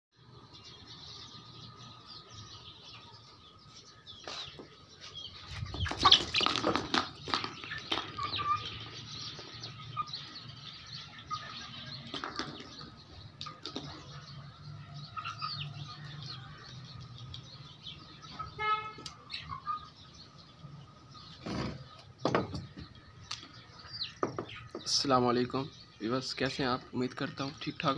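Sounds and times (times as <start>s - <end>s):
wings flapping: 5.7s - 8.3s
chickens pecking at metal bowl: 5.8s - 9.5s, 12.1s - 14.1s.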